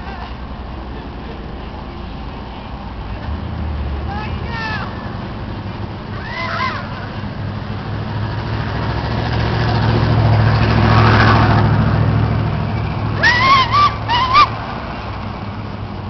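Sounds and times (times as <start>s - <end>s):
vehicle engine passing: 0.8s - 16.0s.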